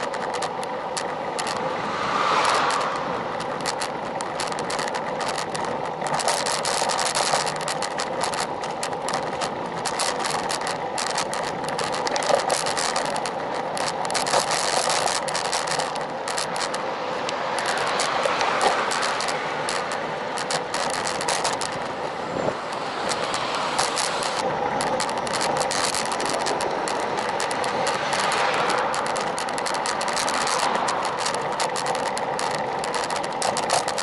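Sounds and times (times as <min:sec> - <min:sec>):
bike tyres on asphalt: 0:00.0 - 0:34.0
small rattling clicks: 0:00.0 - 0:34.0
car passing close: 0:01.5 - 0:04.0, 0:16.8 - 0:20.4.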